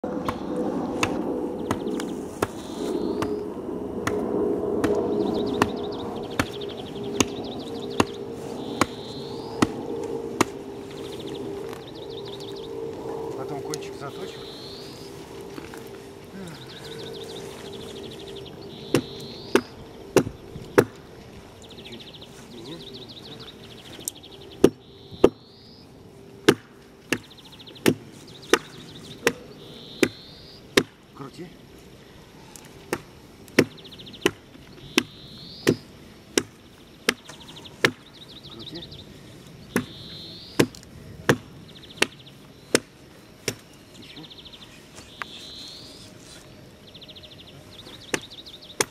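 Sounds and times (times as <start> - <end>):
axe chopping wood: 1.0 - 1.8, 18.9 - 21.0, 26.4 - 29.4, 30.8 - 31.0, 32.9 - 34.4, 35.0 - 38.1, 39.7 - 40.0, 40.6 - 43.6, 48.1 - 48.9.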